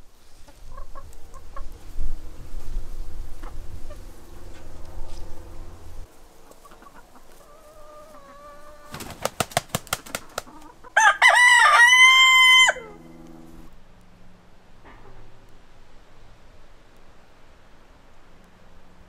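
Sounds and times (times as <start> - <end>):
chickens clucking: 0.2 - 2.4, 3.2 - 13.7
rooster crowing: 10.9 - 13.5.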